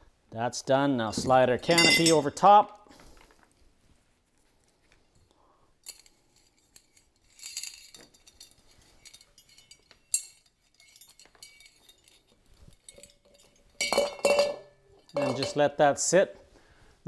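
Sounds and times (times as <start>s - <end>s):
rustling: 2.9s - 5.3s
light metal clinks: 5.8s - 15.6s.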